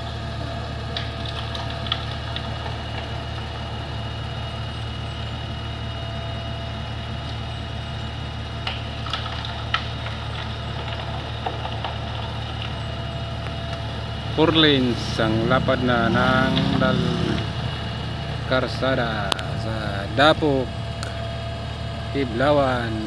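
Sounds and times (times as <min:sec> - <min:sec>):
diesel engine idling: 0:00.0 - 0:23.0
engine whine: 0:00.0 - 0:23.0.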